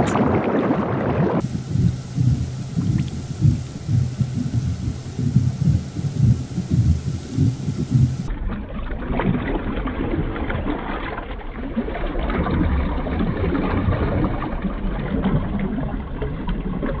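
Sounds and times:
low rumble: 0.0 - 17.0
water sloshing and crackling: 0.0 - 17.0.

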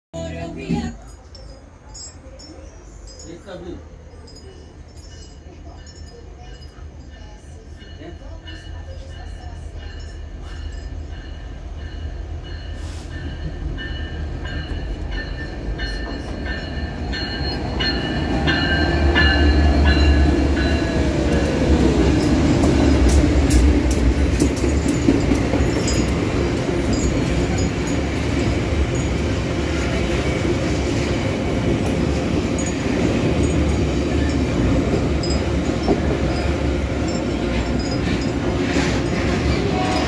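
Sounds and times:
diesel locomotive engine rumble: 0.2 - 40.0
train wheels clicking over rail joints: 13.3 - 40.0.

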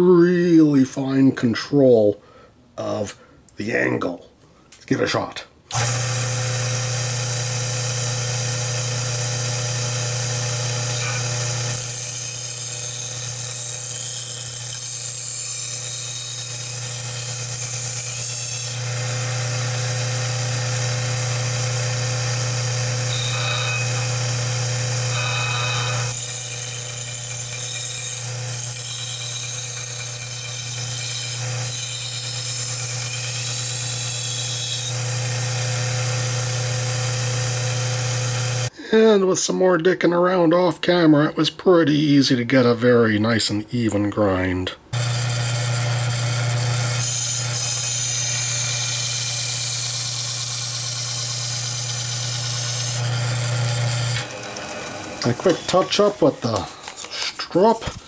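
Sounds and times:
belt sander motor hum: 5.7 - 14.7, 18.7 - 28.5, 34.8 - 38.7, 45.0 - 57.2
knife grinding on sanding belt: 53.9 - 58.0.

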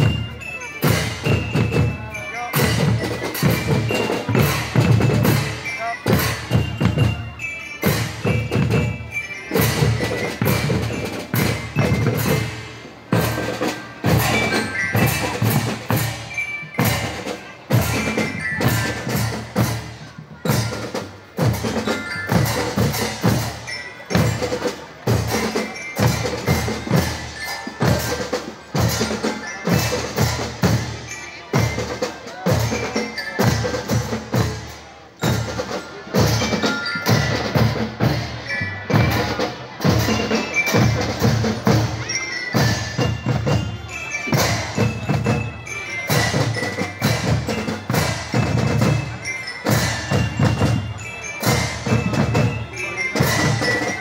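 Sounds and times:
snare drums beating: 0.0 - 31.0
mallet percussion bell tones: 0.0 - 54.0
marching bass drums: 0.0 - 54.0.

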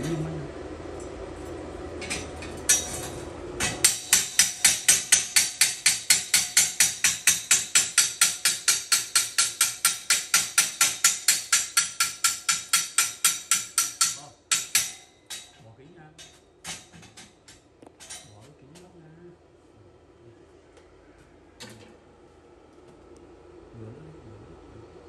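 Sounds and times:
hammer striking steel: 2.0 - 15.6, 16.2 - 18.2.

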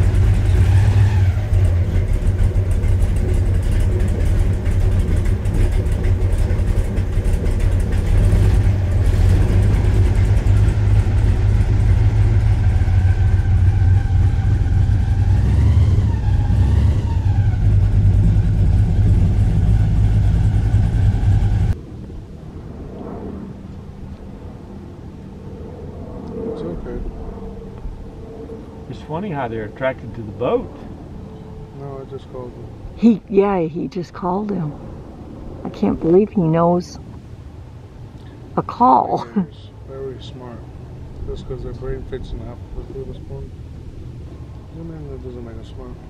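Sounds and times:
airboat engine and propeller: 0.0 - 15.2, 16.5 - 33.0.

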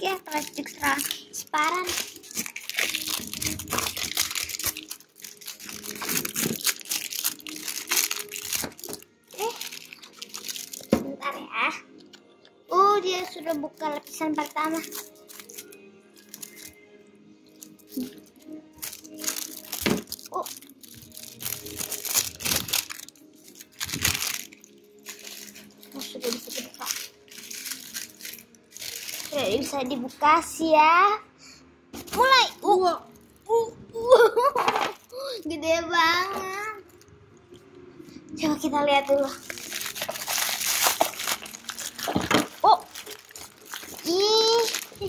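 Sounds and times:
plastic wrap crackling: 0.0 - 16.8, 17.4 - 30.1, 39.0 - 45.0.

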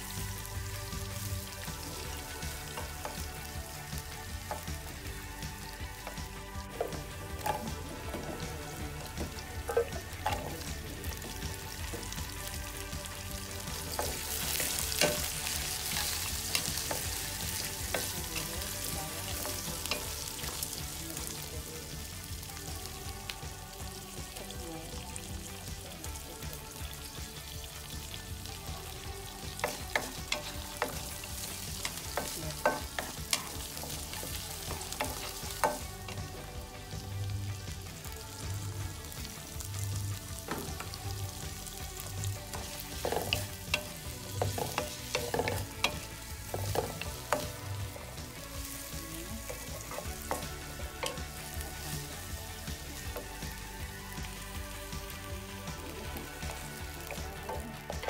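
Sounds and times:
onions sizzling in hot oil: 0.0 - 58.0
spatula knocking and scraping pan: 1.6 - 20.9, 29.4 - 36.4, 40.4 - 53.4.

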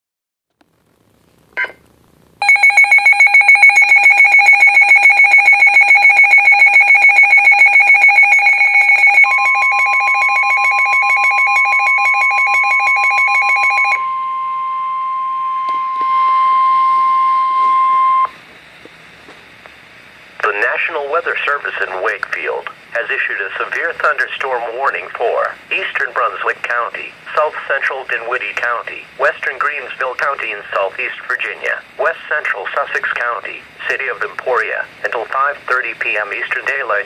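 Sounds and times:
fast pulsing alarm beeps: 2.4 - 18.4
steady alarm tone: 2.4 - 18.4.

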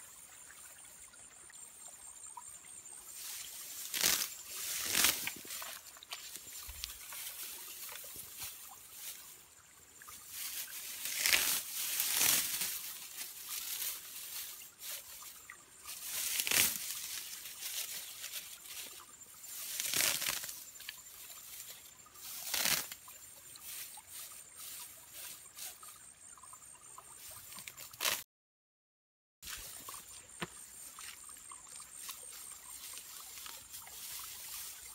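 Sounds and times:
faint steady hiss: 0.0 - 26.2, 29.5 - 34.9
stalks rustling: 3.2 - 9.4, 10.0 - 23.0, 27.5 - 28.2
hands splashing in muddy water: 3.7 - 8.8.

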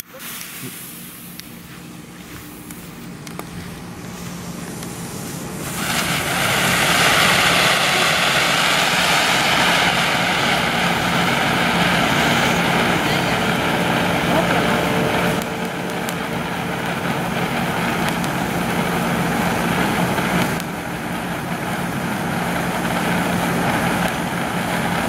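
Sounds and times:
firework fountain hissing: 0.0 - 25.0
firework fuse fizzing: 0.0 - 25.0.

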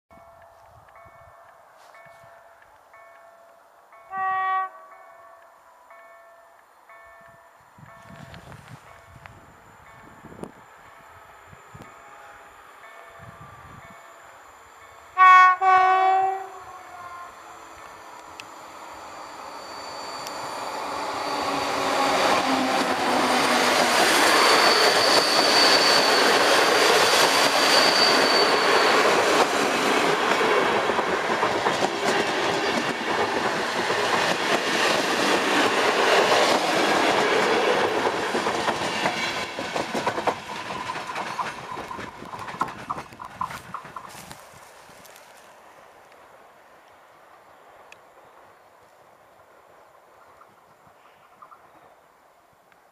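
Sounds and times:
rhythmic clicks over rail joints: 0.2 - 4.2, 29.0 - 44.4
low-toned locomotive horn blasts: 4.1 - 5.0, 15.0 - 17.6
train wheels rushing on rails: 17.2 - 45.4.

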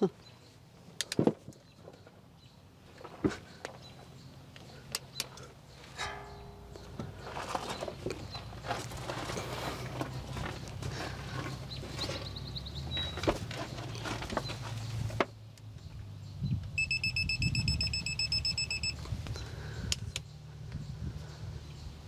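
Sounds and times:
torque wrench beeping: 16.8 - 19.0.

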